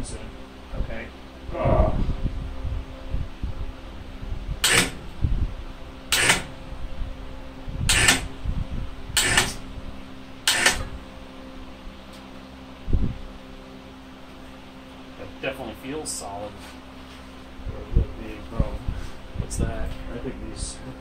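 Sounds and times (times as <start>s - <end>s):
steady hum: 0.0s - 21.0s
ratchet strap clicking: 6.1s - 6.5s, 7.9s - 8.3s, 9.2s - 9.6s, 10.5s - 10.9s.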